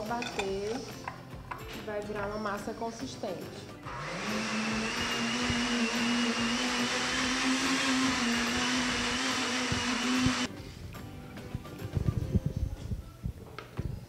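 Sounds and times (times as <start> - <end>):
blender running: 3.9 - 10.5.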